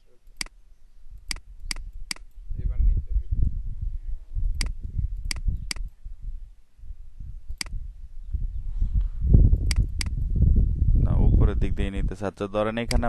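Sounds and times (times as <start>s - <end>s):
computer mouse clicking: 4.6s - 5.9s, 7.6s - 7.8s, 9.6s - 10.2s.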